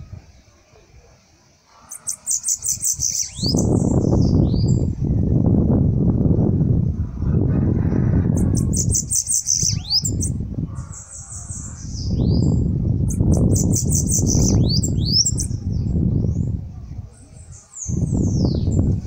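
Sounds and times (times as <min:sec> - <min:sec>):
bird buzzy trilled song: 0:01.9 - 0:05.4, 0:08.4 - 0:16.5
loud low rumble: 0:03.8 - 0:08.7.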